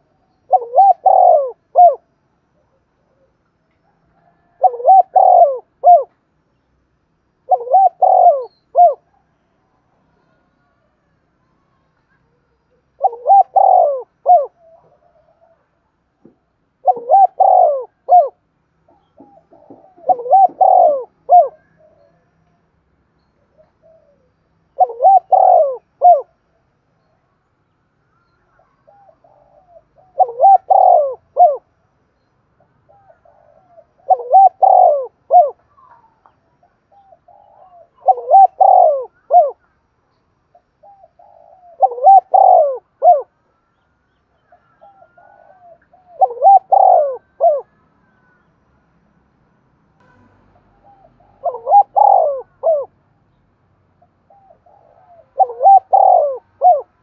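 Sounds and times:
dove cooing: 0.0s - 3.4s, 4.0s - 6.1s, 7.4s - 9.3s, 12.9s - 15.8s, 16.8s - 22.3s, 23.5s - 26.4s, 28.5s - 31.7s, 32.8s - 39.8s, 40.8s - 43.4s, 44.4s - 48.4s, 50.1s - 53.0s, 54.0s - 57.0s.

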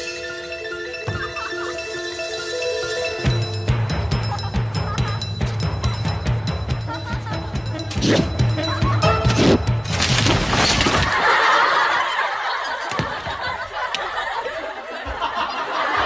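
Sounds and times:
dramatic music with pounding beat: 0.0s - 10.0s
studio audience laughter: 11.1s - 16.0s.

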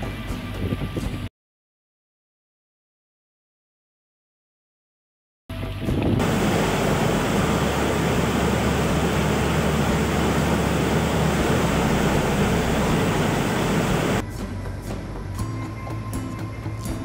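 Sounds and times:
floodwater rushing: 6.2s - 14.2s.

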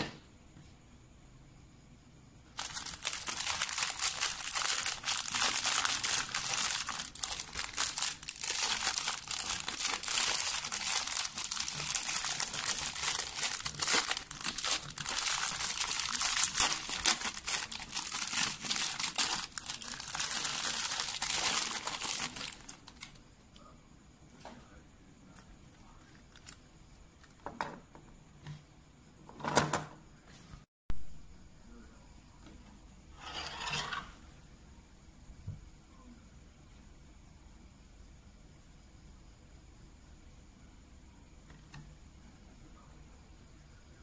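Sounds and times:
plastic bag crinkling: 2.5s - 23.2s.

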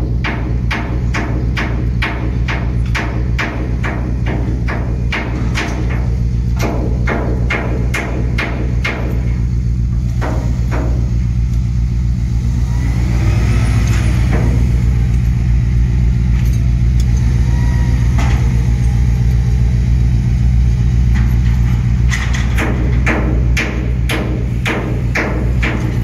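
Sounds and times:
sharp metallic knocks: 0.0s - 11.3s, 13.8s - 15.7s, 21.1s - 26.0s
heavy machinery engine drone: 0.0s - 26.0s.

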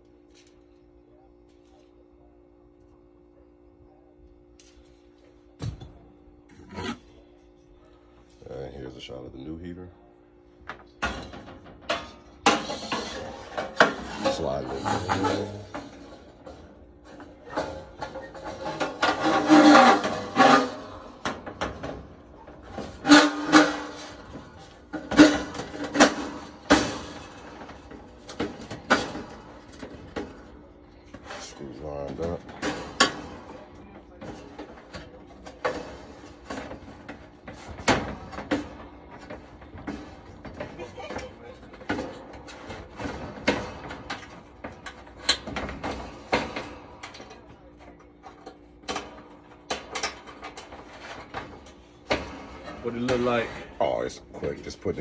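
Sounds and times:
sheet metal knocks and clanks: 11.0s - 31.5s.

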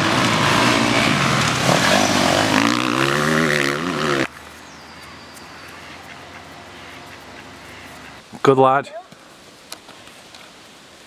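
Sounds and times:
off-road vehicle engine revving: 0.0s - 4.3s.

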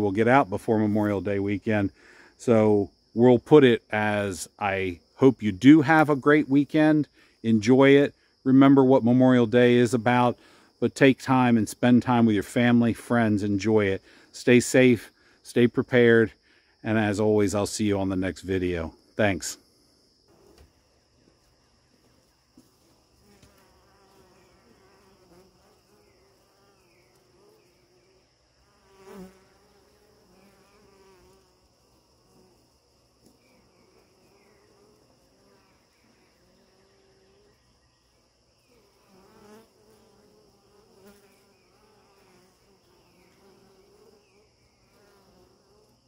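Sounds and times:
honeybees buzzing: 20.2s - 46.0s
bee flying past microphone: 23.0s - 37.6s, 38.7s - 46.0s.

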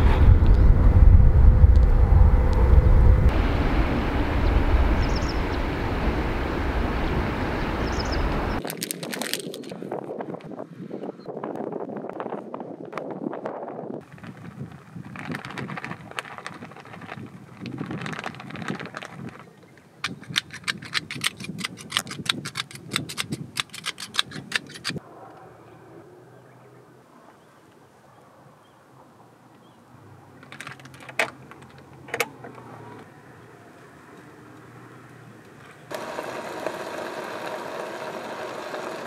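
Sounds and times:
plastic bag rustling: 8.6s - 9.8s, 14.1s - 19.5s.

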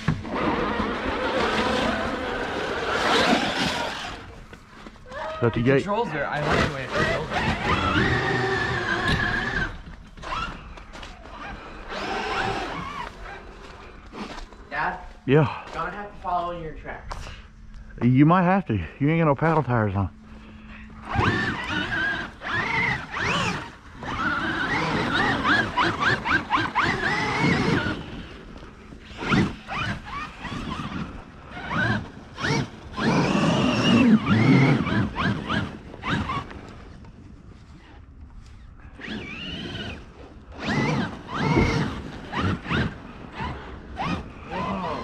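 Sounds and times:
rc truck electric motors whining: 0.0s - 14.9s, 20.2s - 45.0s.

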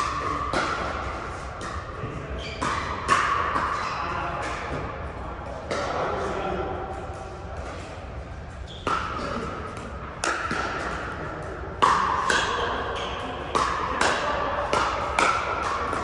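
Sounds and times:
paddles hitting plastic ball: 8.8s - 16.0s.

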